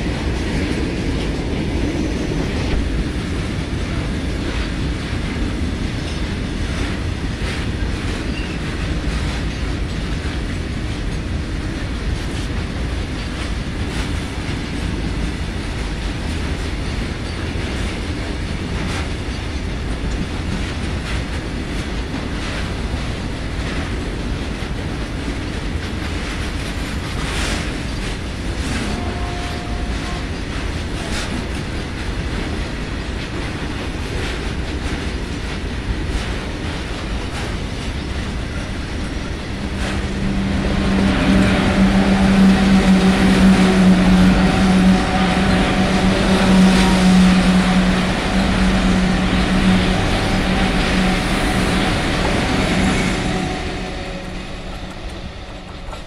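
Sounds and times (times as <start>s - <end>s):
clickety-clack over rail joints: 0.0s - 56.0s
train wheels rumbling: 0.0s - 56.0s
train wheel squeal: 8.1s - 8.9s, 17.2s - 17.7s.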